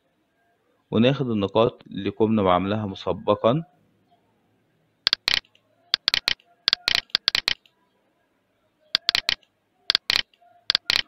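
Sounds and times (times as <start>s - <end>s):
computer mouse clicking: 5.1s - 7.7s, 9.0s - 11.0s.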